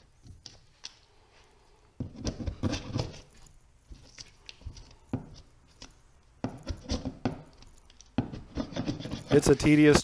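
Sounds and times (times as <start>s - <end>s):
chisel scraping wall: 2.0s - 10.0s.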